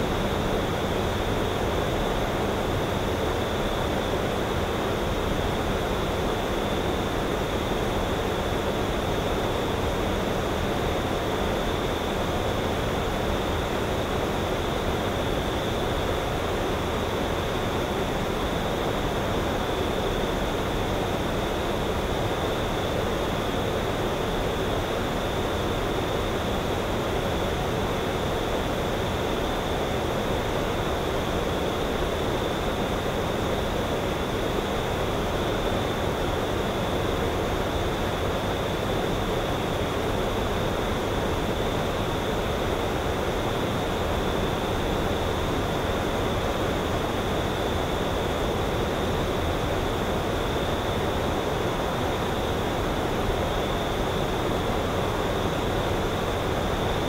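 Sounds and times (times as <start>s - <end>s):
steady outdoor hiss: 0.0s - 57.0s.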